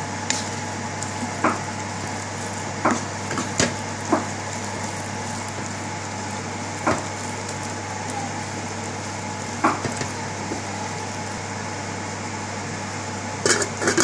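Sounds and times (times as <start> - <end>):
sauce sizzling in pan: 0.0 - 11.6
spatula stirring sauce: 0.3 - 11.4
spatula knocking on pan: 2.8 - 5.8, 6.8 - 10.7.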